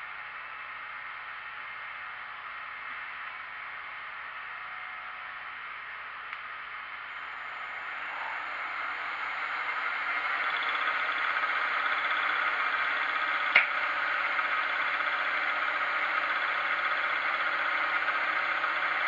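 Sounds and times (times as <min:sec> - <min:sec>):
milling machine whirring: 0:06.9 - 0:19.0
sharp click: 0:13.5 - 0:13.8.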